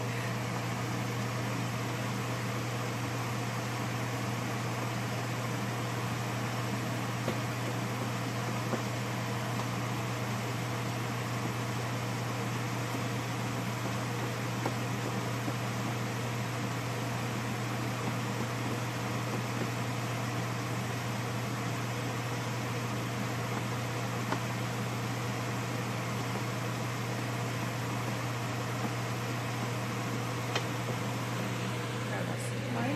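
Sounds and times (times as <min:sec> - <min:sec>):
fan whirring: 0:00.0 - 0:32.9.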